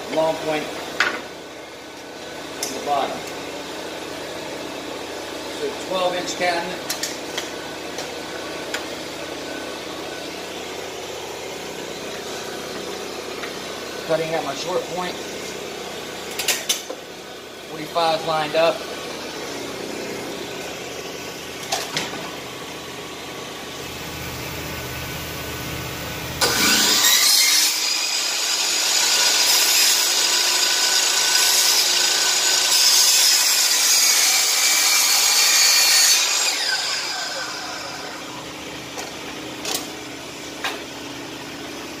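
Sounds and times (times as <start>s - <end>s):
miter saw motor whining: 26.4s - 38.7s.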